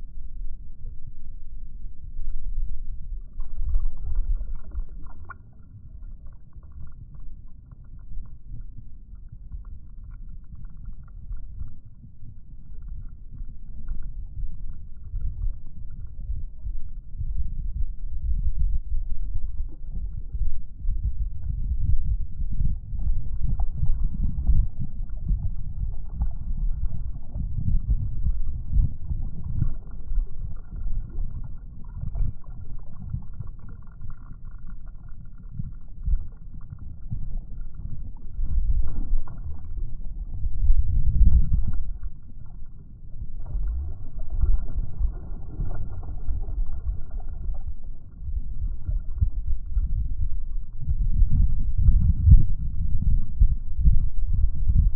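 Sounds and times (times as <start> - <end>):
wind rumble on microphone: 0.0 - 54.9
water lapping against kayak hull: 3.2 - 8.4, 22.6 - 51.0.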